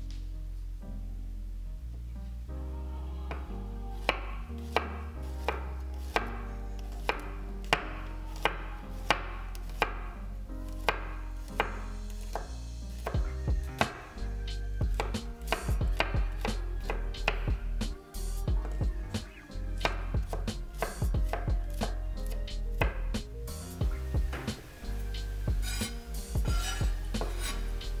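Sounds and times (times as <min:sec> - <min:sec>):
knife chopping on wooden board: 0:25.6 - 0:27.6.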